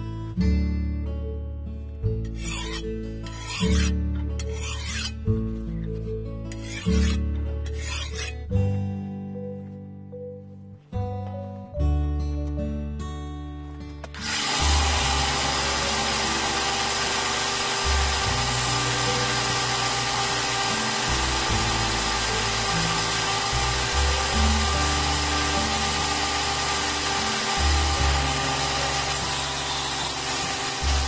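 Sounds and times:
belt grinder grinding steel: 2.4 - 5.2, 6.5 - 8.4, 14.1 - 31.0.

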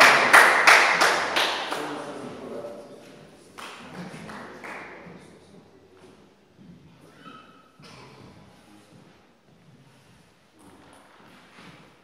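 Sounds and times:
brief high squeak: 7.0 - 7.8.

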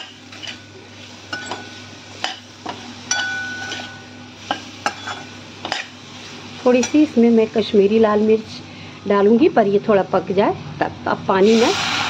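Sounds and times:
metal spoon scraping a metal pan: 0.0 - 0.6, 3.1 - 5.9.

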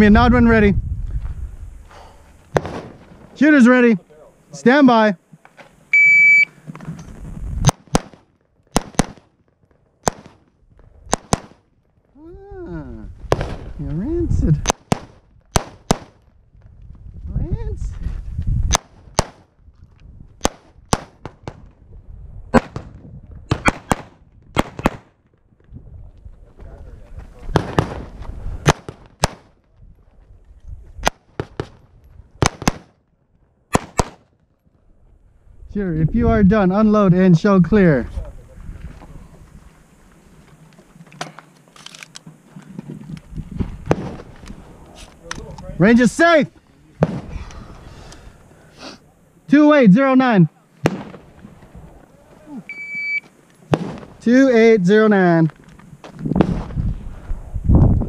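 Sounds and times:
rifle shots with echo: 7.6 - 9.3, 10.0 - 10.4, 11.1 - 11.6, 22.6 - 25.1, 32.4 - 32.9, 33.7 - 34.3, 50.8 - 51.3, 53.7 - 54.2.

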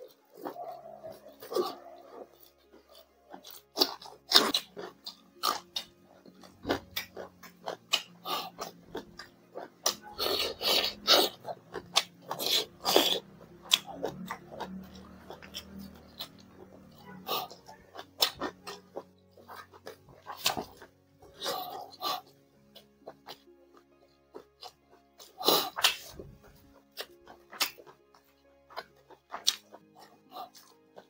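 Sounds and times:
chewing and mouth smacking: 0.0 - 31.0.

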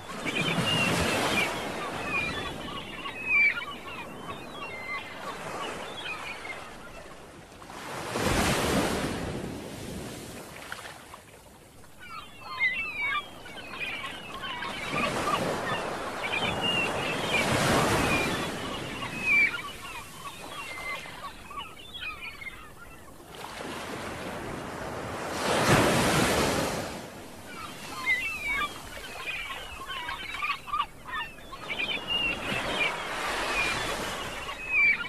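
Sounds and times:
small birds chirping: 0.0 - 7.0, 11.9 - 23.2, 27.5 - 35.0.

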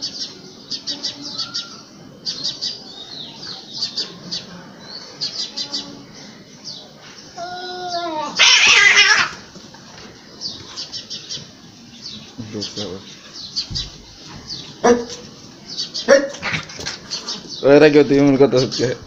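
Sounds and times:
small birds chirping: 0.0 - 19.0
cat growling: 7.4 - 9.5
cat yowling: 7.4 - 9.5.

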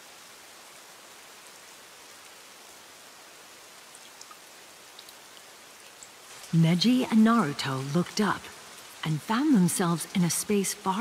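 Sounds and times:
faint rain hissing: 0.0 - 11.0
light drip ticks: 3.8 - 6.5.

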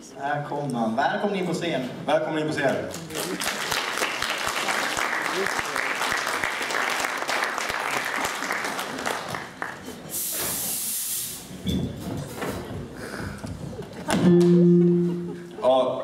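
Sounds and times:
audience applause: 2.9 - 10.1
fog machine hissing: 10.1 - 11.6.

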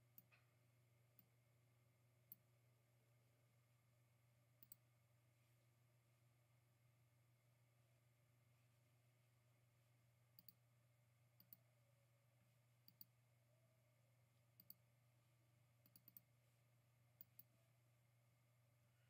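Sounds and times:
faint low hum: 0.0 - 19.0
computer mouse clicks: 0.1 - 0.4, 4.6 - 4.8, 10.4 - 10.6, 11.4 - 11.6, 12.9 - 13.1, 14.6 - 14.8, 15.8 - 16.3, 17.2 - 17.5.

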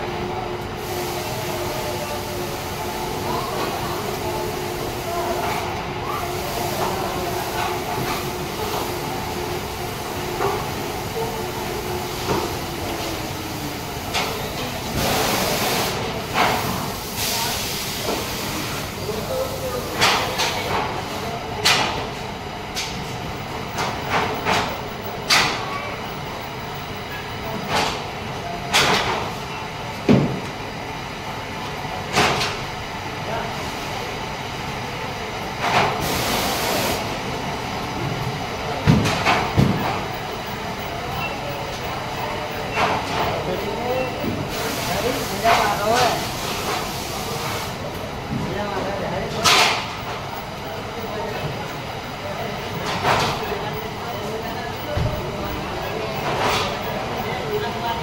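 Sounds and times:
factory floor running noise: 0.0 - 58.0
machinery hiss: 0.7 - 20.2, 35.9 - 37.3, 44.4 - 47.9.

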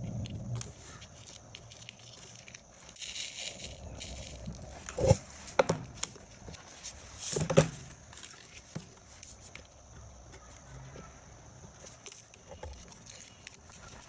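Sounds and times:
sand sprinkling hiss: 0.4 - 9.5
board knocks and rattles: 7.4 - 7.9.

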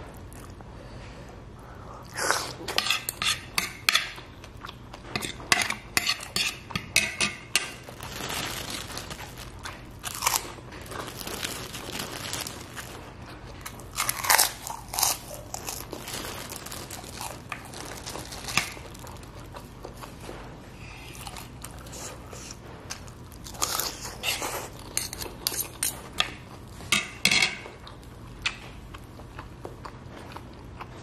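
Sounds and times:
cutlery scraping on a plate: 2.7 - 4.2, 5.0 - 7.8, 24.2 - 27.6
plastic bag crinkling: 7.5 - 20.2
chewing: 7.9 - 26.9, 27.6 - 31.0.

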